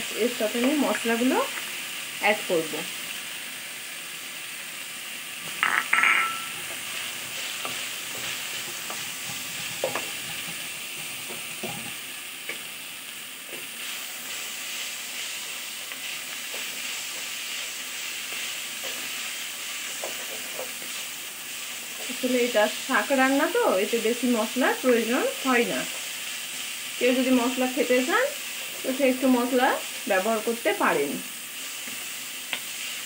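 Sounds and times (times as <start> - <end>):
food sizzling in oil: 0.0 - 33.0
spatula scraping a pan: 5.6 - 12.1, 13.5 - 22.3.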